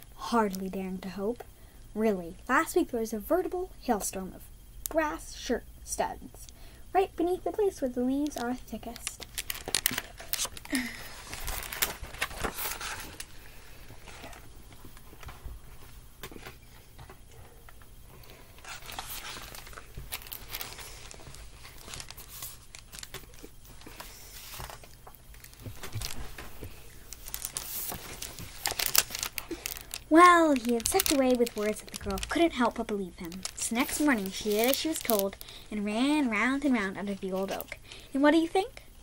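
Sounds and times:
book pages rustling: 0:08.2 - 0:10.6, 0:11.2 - 0:13.4, 0:18.6 - 0:35.4.

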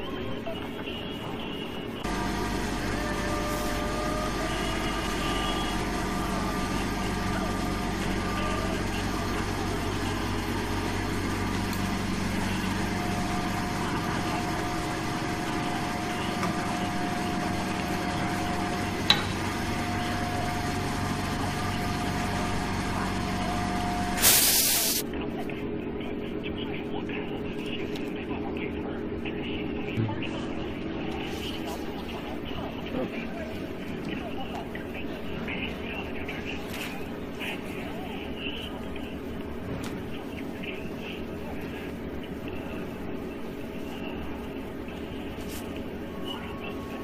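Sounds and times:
machinery electrical hum: 0:00.0 - 0:47.0
loud air hiss: 0:24.1 - 0:25.0.

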